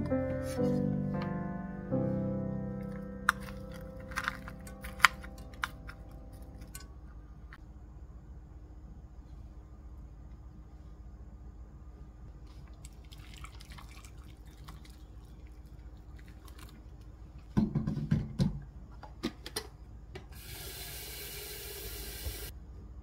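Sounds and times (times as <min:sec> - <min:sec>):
water running into a bowl: 0:12.8 - 0:15.4.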